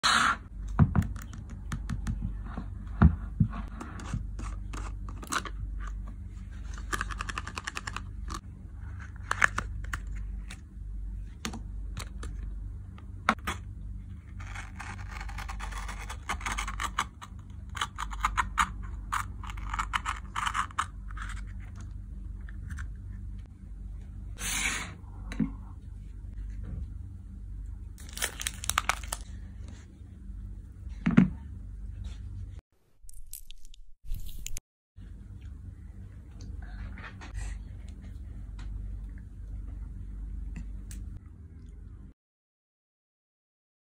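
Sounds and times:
foil seal crinkling and tearing: 0:28.0 - 0:29.3.

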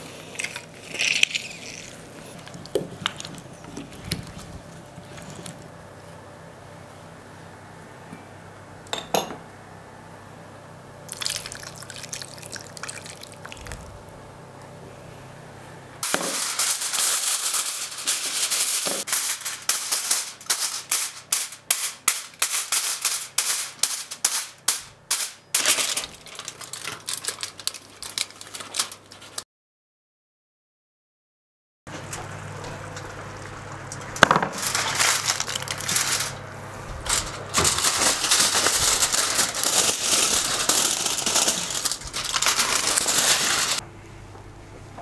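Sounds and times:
aluminium foil crinkling: 0:00.0 - 0:05.7, 0:11.1 - 0:14.1, 0:16.0 - 0:29.4, 0:33.0 - 0:43.8.

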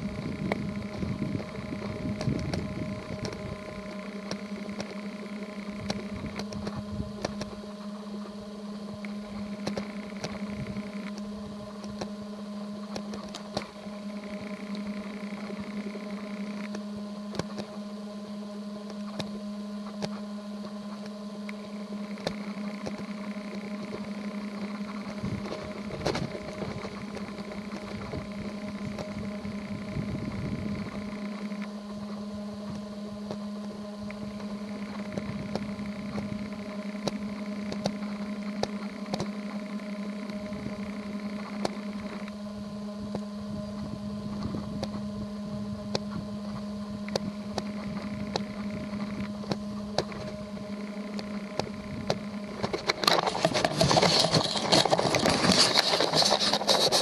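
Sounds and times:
steady low hum: 0:00.0 - 0:57.0
faint clicks and ticks: 0:00.2 - 0:07.6, 0:09.0 - 0:12.1, 0:12.9 - 0:17.8, 0:20.9 - 0:29.8, 0:34.1 - 0:42.4.

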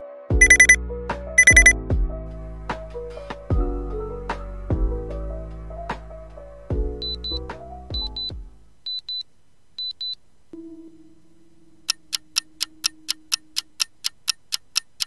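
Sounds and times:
fast clock ticking: 0:00.4 - 0:00.8, 0:01.4 - 0:01.7, 0:11.9 - 0:15.0
held low tone: 0:00.4 - 0:00.8
paired high beeps: 0:00.4 - 0:00.8, 0:01.4 - 0:01.8, 0:07.0 - 0:07.4.

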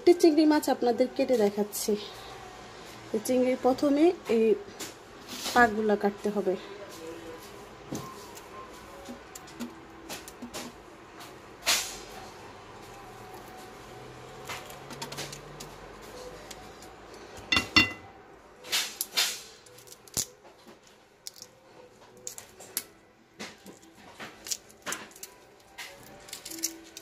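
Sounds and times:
shell crackling: 0:23.8 - 0:27.0.

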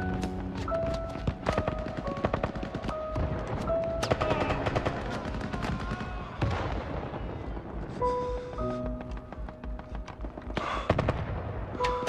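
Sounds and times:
film score with held notes: 0:00.0 - 0:12.0
machine-gun and rifle fire: 0:01.4 - 0:07.6.

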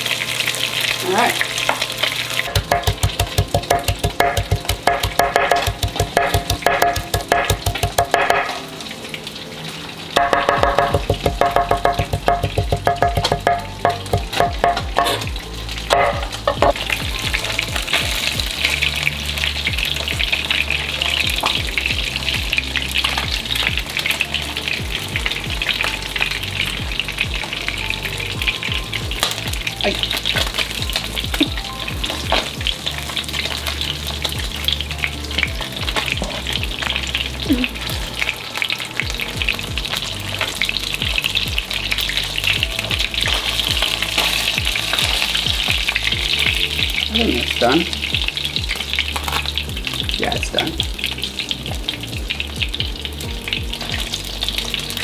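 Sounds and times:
fish frying in oil: 0:00.0 - 0:55.0
knife chopping on wooden board: 0:02.5 - 0:08.6, 0:10.2 - 0:15.2
spatula scraping: 0:02.5 - 0:08.6, 0:10.2 - 0:15.3.

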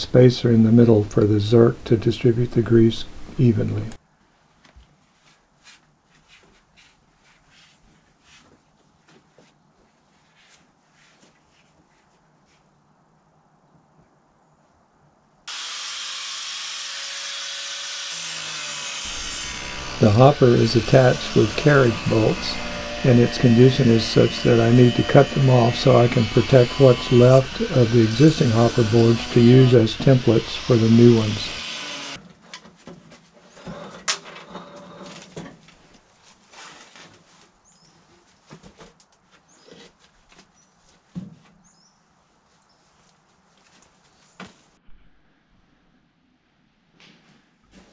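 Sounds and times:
power grinder cutting steel bolts: 0:15.5 - 0:32.2.

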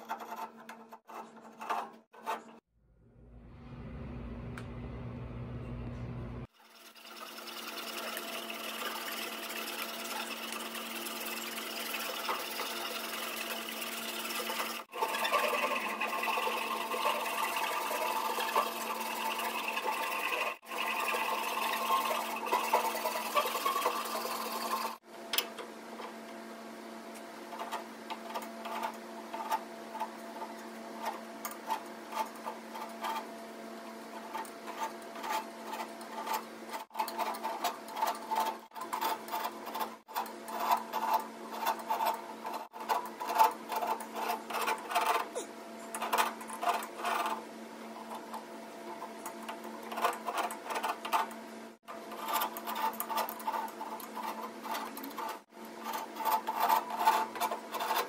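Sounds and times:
steady low hum: 0:02.7 - 0:06.5.

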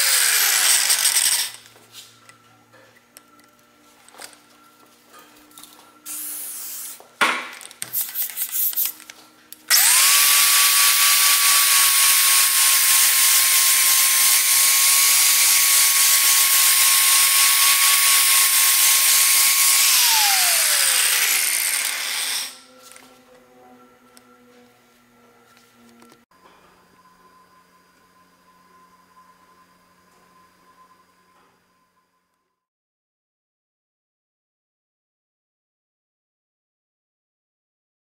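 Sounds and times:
angle grinder sanding metal: 0:00.0 - 0:01.6, 0:09.7 - 0:22.9
aerosol can spraying: 0:06.1 - 0:07.0, 0:07.8 - 0:09.0.

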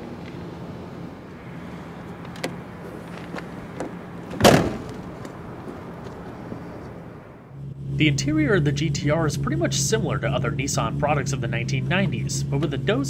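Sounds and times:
low hum: 0:00.0 - 0:13.0
car boot lid slamming: 0:02.3 - 0:05.4.

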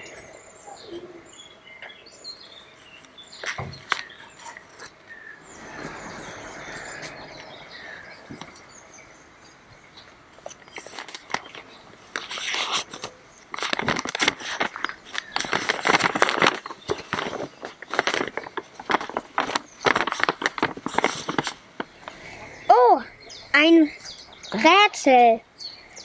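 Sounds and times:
paper crinkling: 0:02.8 - 0:05.9, 0:10.4 - 0:22.0.

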